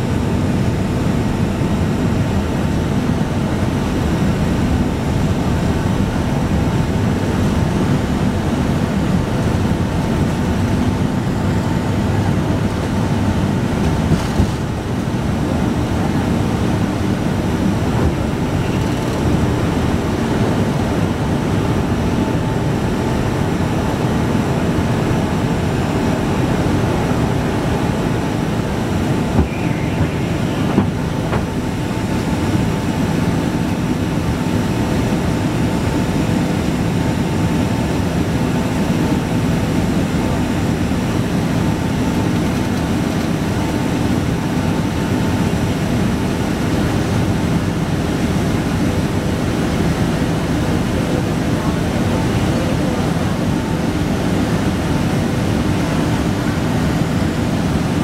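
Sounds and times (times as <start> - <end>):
jet engines and air rushing: 0.0 - 45.6
faint steady whine: 22.7 - 38.0.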